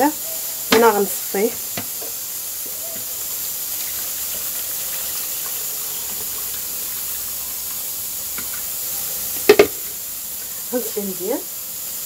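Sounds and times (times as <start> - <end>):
constant hiss: 0.0 - 12.0
liquid pouring through a strainer: 2.8 - 10.6.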